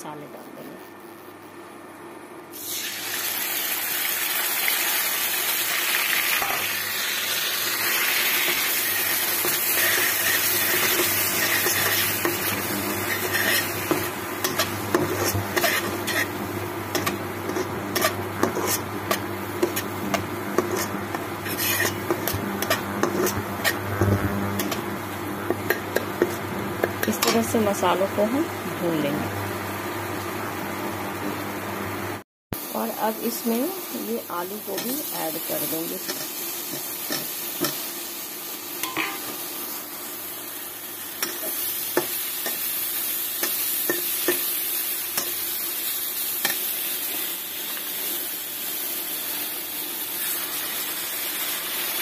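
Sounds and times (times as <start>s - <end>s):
paste sizzling in hot oil: 2.6s - 23.8s, 32.8s - 52.0s
spatula scraping a pan: 9.4s - 23.9s.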